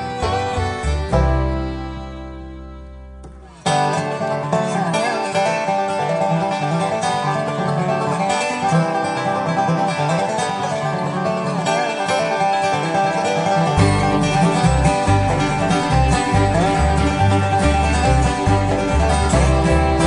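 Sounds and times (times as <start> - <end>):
bluegrass music with banjo and guitar: 0.0 - 20.0.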